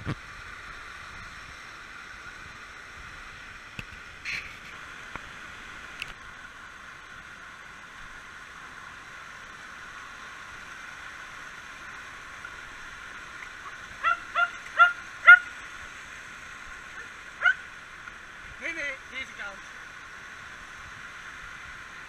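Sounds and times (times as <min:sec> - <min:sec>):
stream pouring over rocks: 0:00.0 - 0:22.0
dog yipping: 0:14.0 - 0:15.4, 0:17.4 - 0:17.6.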